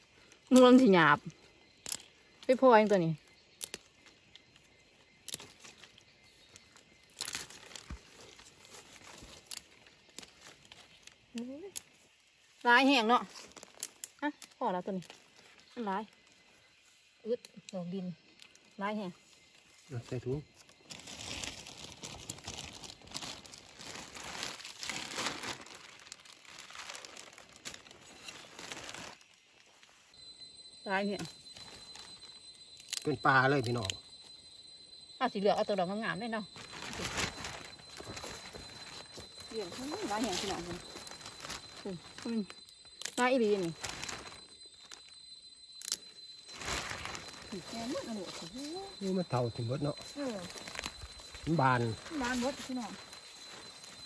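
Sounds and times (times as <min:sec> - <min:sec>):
rustling and crinkling handling: 0:05.2 - 0:12.1, 0:19.5 - 0:30.0, 0:31.3 - 0:33.0, 0:36.5 - 0:45.2, 0:45.8 - 0:54.0.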